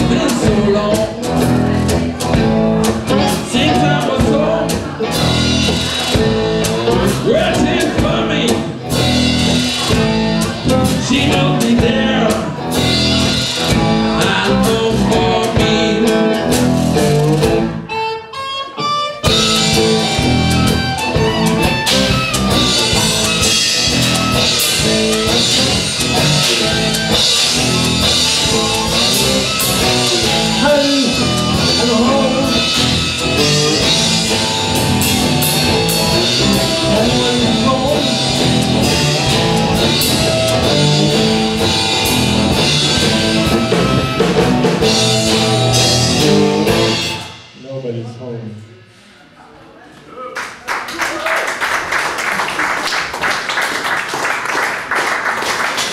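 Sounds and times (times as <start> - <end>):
guitars: 0.0 - 47.9
drums: 0.0 - 49.0
harmonica solo: 17.8 - 36.9, 38.1 - 47.4.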